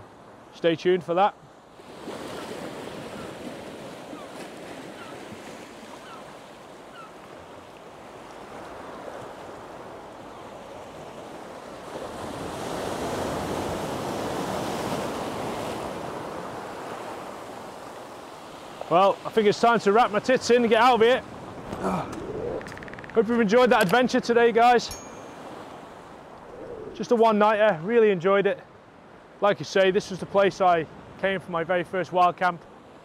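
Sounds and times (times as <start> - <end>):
surf washing over rocks: 10.8 - 28.0.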